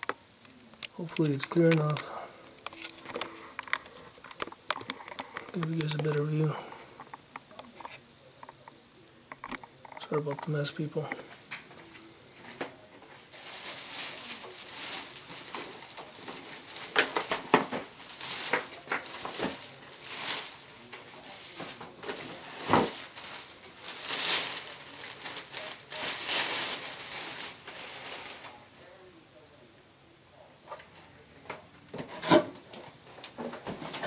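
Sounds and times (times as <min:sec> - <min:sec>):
plastic bag crinkling: 0:00.0 - 0:08.0, 0:12.8 - 0:28.7.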